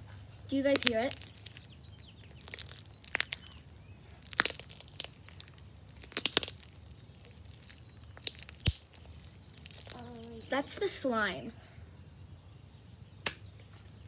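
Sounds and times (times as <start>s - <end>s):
slime squeezed by hand: 0.7s - 3.6s, 4.2s - 10.6s.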